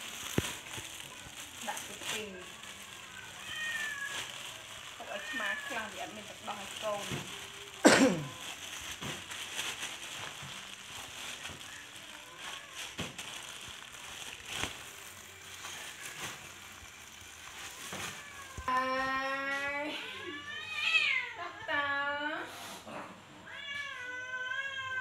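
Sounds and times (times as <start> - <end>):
plastic bag crinkling: 0.0 - 19.3
cat meowing: 2.5 - 8.5, 20.1 - 21.4, 23.4 - 25.0.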